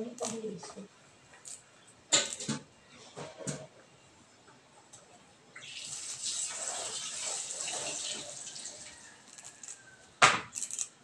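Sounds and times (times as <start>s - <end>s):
tap water running into sink: 5.6s - 9.0s.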